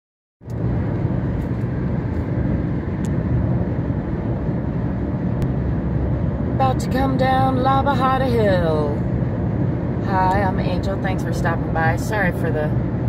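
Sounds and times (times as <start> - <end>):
car cabin road noise rumble: 0.4 - 13.0.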